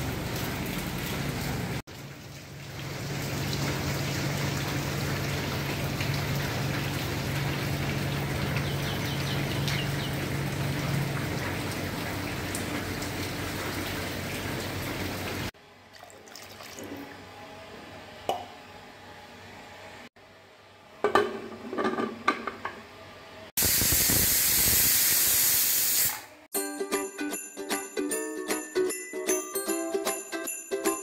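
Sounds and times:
steady rain hiss: 0:23.6 - 0:25.6.

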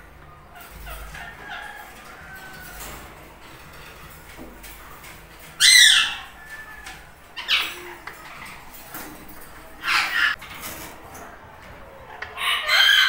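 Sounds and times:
parrot screeching: 0:05.6 - 0:08.0, 0:09.8 - 0:10.4, 0:12.4 - 0:13.0.

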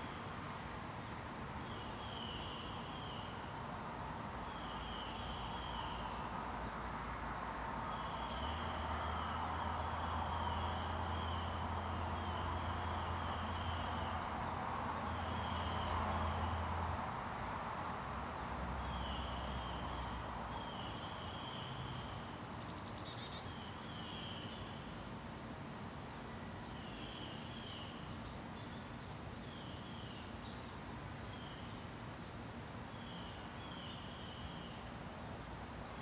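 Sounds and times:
distant traffic rumble: 0:00.0 - 0:23.1.

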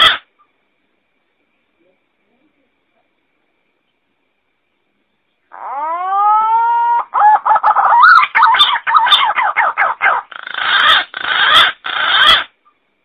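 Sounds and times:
harsh drawn-out bird calls: 0:00.0 - 0:00.6, 0:05.4 - 0:12.8
pigeon warbling whistled notes: 0:05.6 - 0:12.5.

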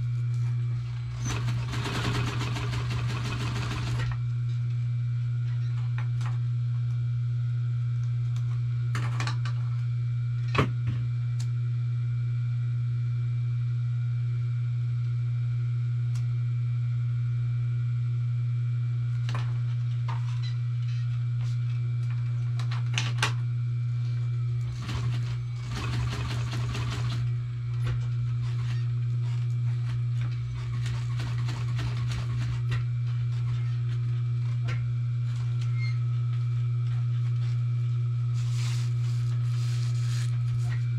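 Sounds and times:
sewing machine motor humming: 0:01.0 - 0:04.2
sewing machine stitching clatter: 0:01.2 - 0:04.2.

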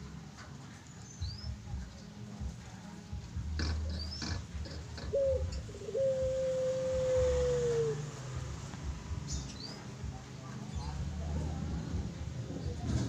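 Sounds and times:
dove cooing: 0:03.4 - 0:09.8.

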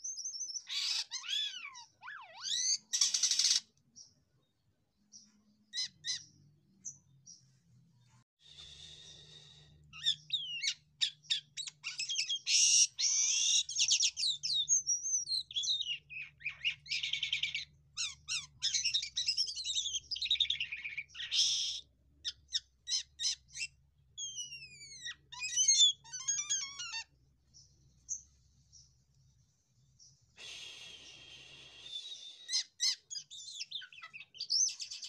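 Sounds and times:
starling singing: 0:00.1 - 0:03.7, 0:05.2 - 0:07.0, 0:10.0 - 0:27.1, 0:31.8 - 0:35.0.

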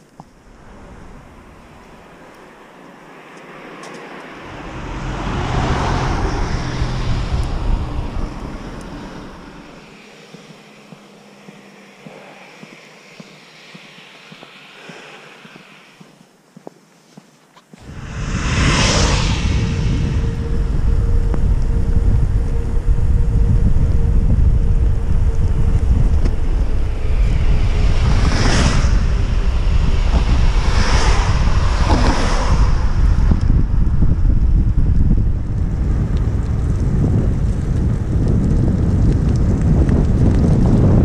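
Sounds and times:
wind buffeting microphone: 0:00.0 - 0:03.0, 0:04.2 - 0:16.2, 0:17.8 - 0:41.0
cars passing on wet road: 0:00.3 - 0:16.0, 0:26.1 - 0:33.4.

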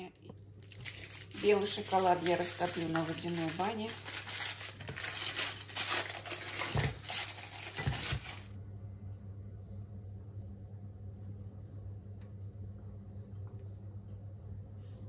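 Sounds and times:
low steady hum: 0:00.0 - 0:15.0
wrapper crinkling and tearing: 0:00.6 - 0:08.6.

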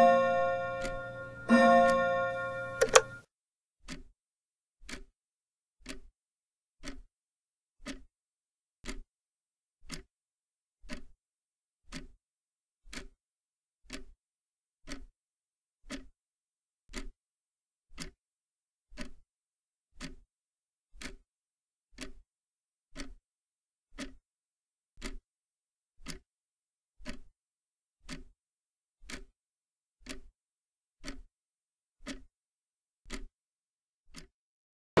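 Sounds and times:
clock ticking: 0:00.0 - 0:03.2, 0:04.8 - 0:05.1, 0:05.8 - 0:06.1, 0:06.8 - 0:07.1, 0:08.8 - 0:09.0, 0:09.9 - 0:10.1, 0:10.9 - 0:11.1, 0:11.9 - 0:12.2, 0:12.9 - 0:13.1, 0:13.9 - 0:14.1, 0:14.9 - 0:15.1, 0:16.9 - 0:17.1, 0:20.0 - 0:20.2, 0:21.0 - 0:21.2, 0:22.0 - 0:22.2, 0:23.0 - 0:23.2, 0:25.0 - 0:25.2, 0:27.0 - 0:27.3, 0:28.0 - 0:28.3, 0:29.0 - 0:29.3, 0:30.0 - 0:30.3, 0:31.0 - 0:31.3.

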